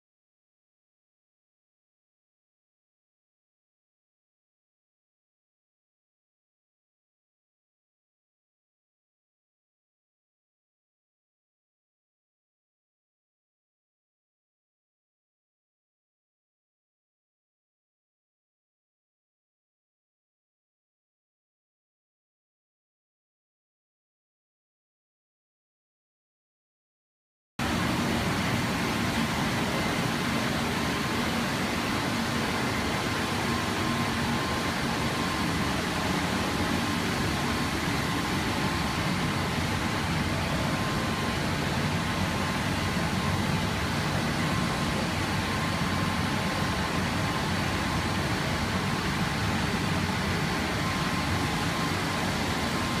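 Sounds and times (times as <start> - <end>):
cooling fans whirring: 27.6 - 53.0
faint steady whine: 27.6 - 53.0.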